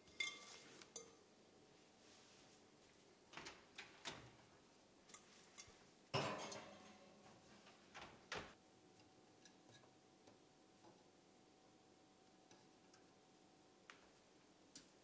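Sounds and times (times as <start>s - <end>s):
glass bowl clinking on rack: 0.0s - 1.2s, 6.2s - 7.2s.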